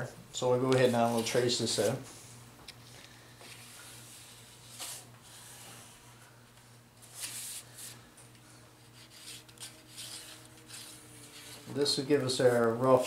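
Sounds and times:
steady low hum: 0:00.0 - 0:13.0
pencil scratching on wood: 0:08.9 - 0:11.7.

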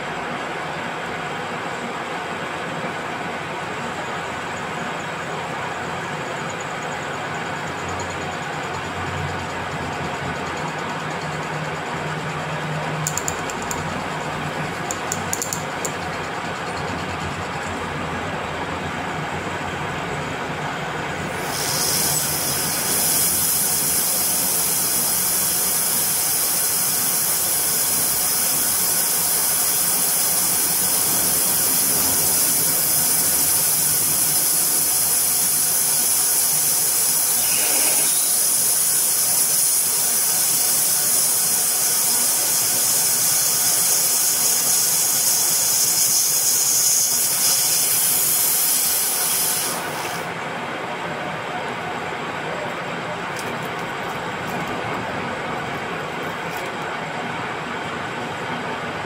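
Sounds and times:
drill boring into steel hiss: 0:21.3 - 0:50.3.

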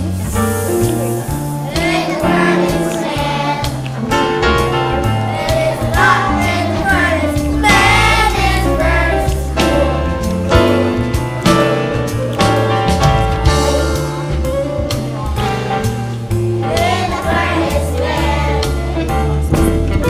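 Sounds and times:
instrumental accompaniment: 0:00.0 - 0:20.0
children's choir singing: 0:01.1 - 0:11.5, 0:16.6 - 0:19.1.

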